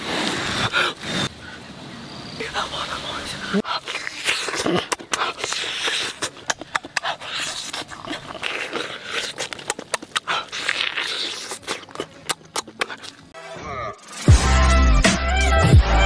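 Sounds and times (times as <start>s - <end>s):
man chewing chicken: 3.6s - 13.3s
noisy crunching: 3.6s - 13.3s
wet mouth clicks and smacks: 3.6s - 13.3s.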